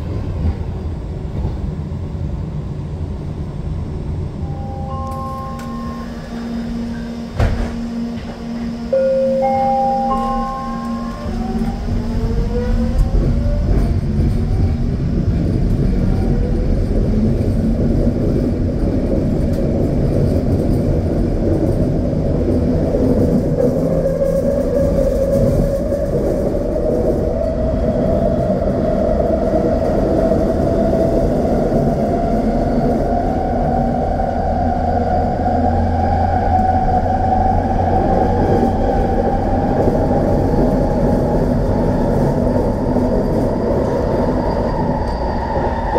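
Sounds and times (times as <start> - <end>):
wheels rumbling on guideway: 3.8 - 45.9
train motor whine: 4.2 - 16.8.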